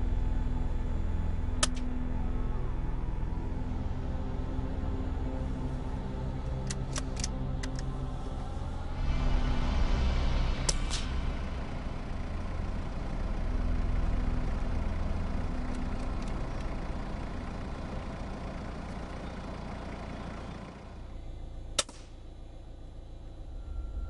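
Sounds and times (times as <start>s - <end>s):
steady low rumble: 0.0s - 24.0s
quick sharp clicks: 21.8s - 22.1s
rifle shot: 21.8s - 22.2s.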